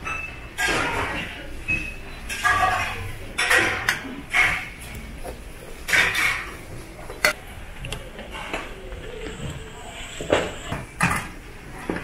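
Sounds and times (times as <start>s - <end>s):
steel bowls clattering: 2.3s - 4.9s.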